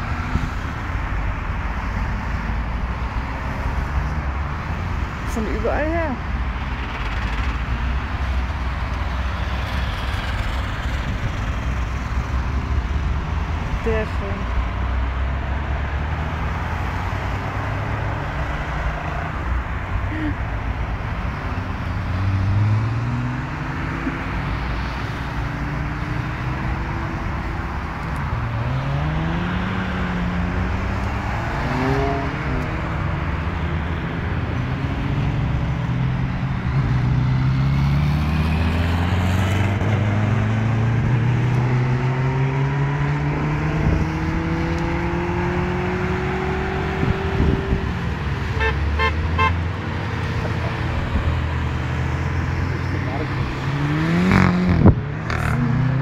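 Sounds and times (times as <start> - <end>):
cars accelerating past: 6.5 - 56.0
car horn short toots: 48.6 - 49.6.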